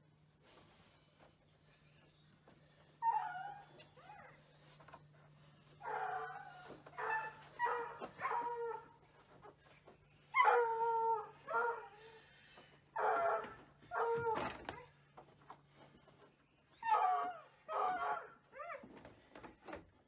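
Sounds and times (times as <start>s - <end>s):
dog whining: 2.7s - 5.1s, 5.7s - 9.4s, 13.0s - 15.0s, 16.7s - 18.9s.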